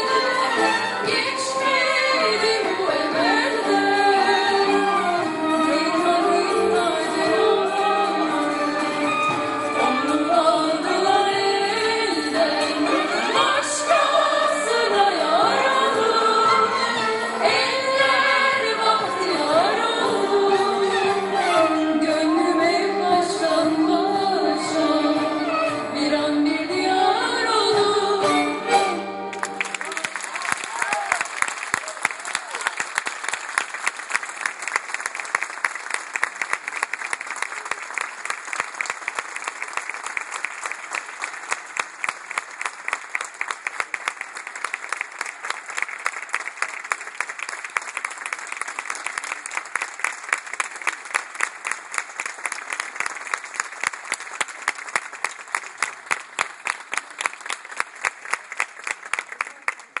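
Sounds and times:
audience applauding: 29.2s - 60.0s.

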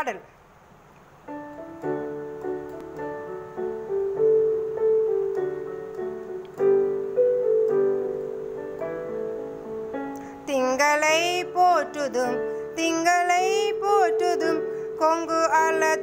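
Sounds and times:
slow keyboard melody: 1.2s - 16.0s
person singing: 10.4s - 16.0s.

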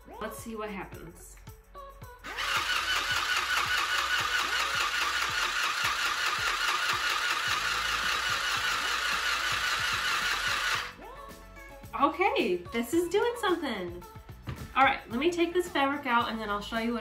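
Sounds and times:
handheld sewing machine stitching: 2.3s - 10.9s.

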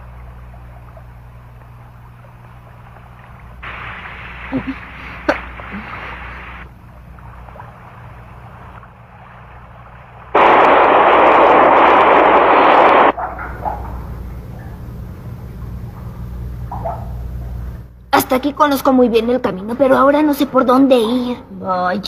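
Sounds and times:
low steady hum: 0.0s - 22.0s
cartoon waterfall rushing: 10.4s - 13.2s.

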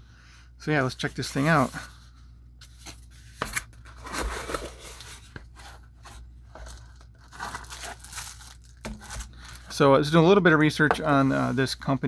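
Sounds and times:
cardboard scraping and rustling: 2.7s - 9.8s, 10.9s - 12.0s
plastic wrap crinkling: 6.6s - 9.9s.

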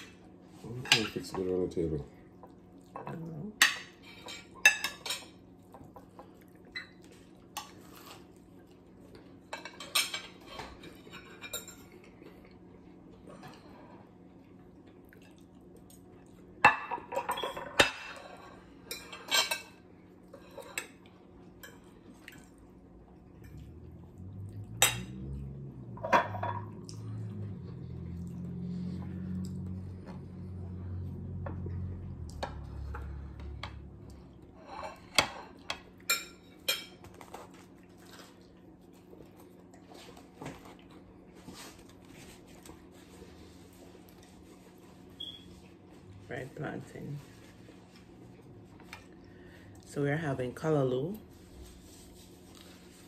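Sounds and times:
low hum: 22.6s - 35.6s.

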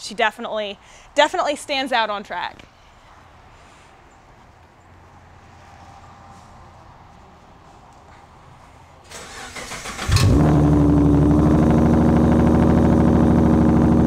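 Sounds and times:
car engine idling: 9.2s - 14.0s.

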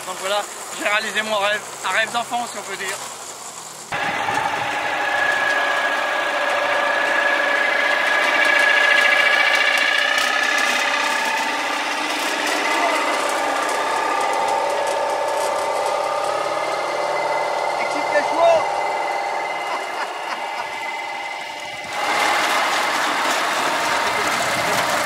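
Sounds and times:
tractor engine running: 3.6s - 25.0s.

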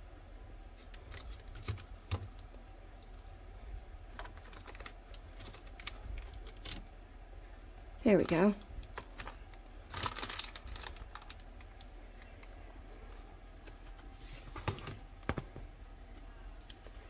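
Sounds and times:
light rustling of cardboard pages: 12.2s - 17.0s.

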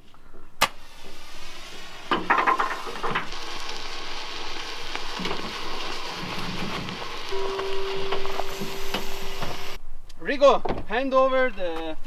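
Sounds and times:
road flare hissing: 0.6s - 9.8s.

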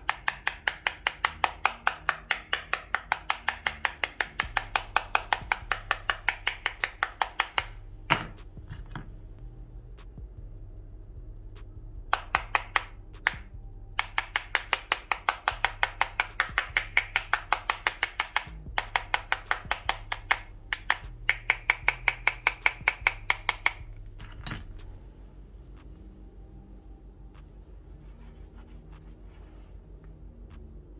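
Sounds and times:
metal key clicking on glass: 24.2s - 24.7s.

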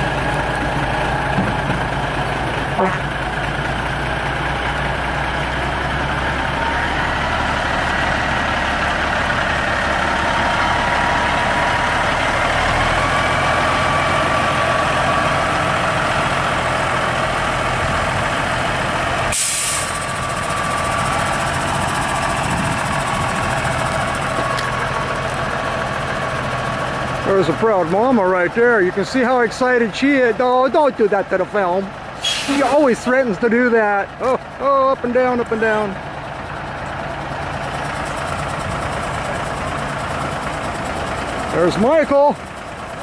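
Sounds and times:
diesel truck engine running: 0.0s - 43.0s
air brake hiss: 19.3s - 20.0s, 32.2s - 32.7s.

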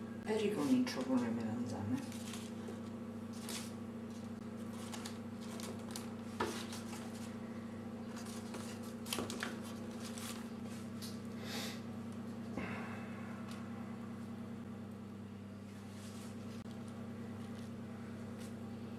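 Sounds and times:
steady low hum: 0.0s - 18.9s
soft food rustles: 1.9s - 7.4s.

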